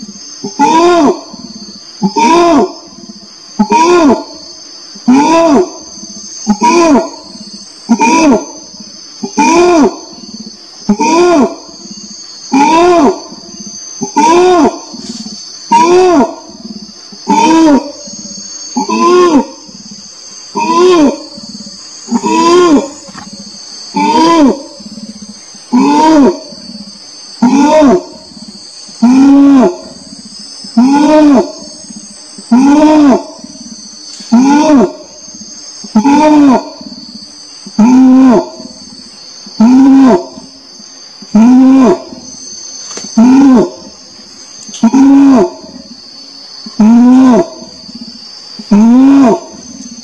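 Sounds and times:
high insect drone: 0:00.0 - 0:50.0
orangutan calling: 0:00.0 - 0:50.0.

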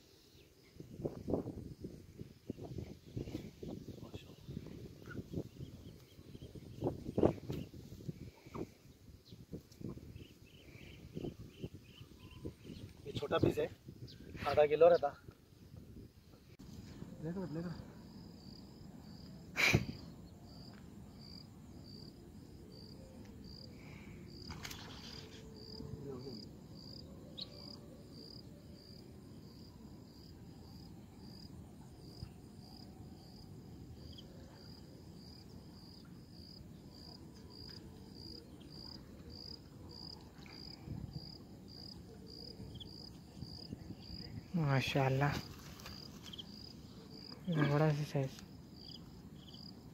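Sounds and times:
insect chirping: 0:00.0 - 0:49.9.

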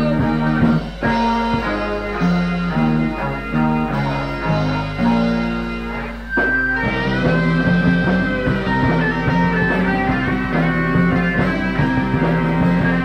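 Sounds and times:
bass guitar: 0:00.0 - 0:13.0
drums: 0:00.0 - 0:13.0
electric guitar: 0:00.0 - 0:13.0.

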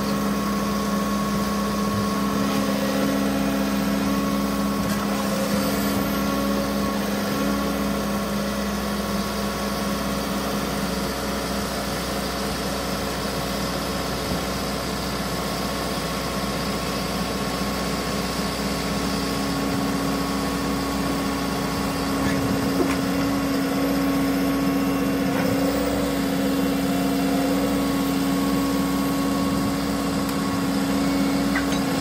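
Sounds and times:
diesel engine running: 0:00.0 - 0:32.0.

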